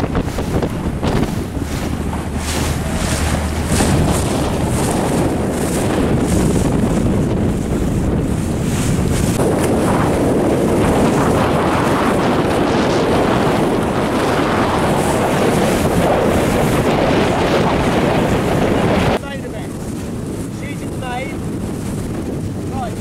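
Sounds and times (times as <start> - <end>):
choppy water splashing: 0.0 - 23.0
strong wind buffeting microphone: 0.0 - 23.0.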